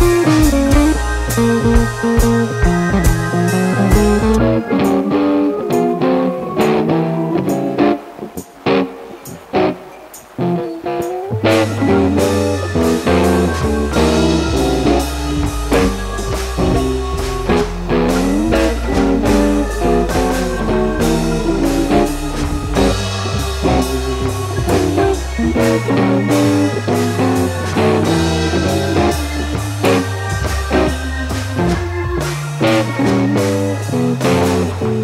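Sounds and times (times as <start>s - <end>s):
blues-rock instrumental music: 0.0s - 35.0s.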